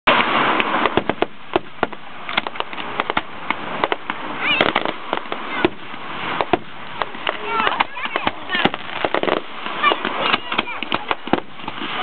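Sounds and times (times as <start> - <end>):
fireworks popping and crackling: 0.0 - 12.0
fireworks hiss: 0.1 - 12.0.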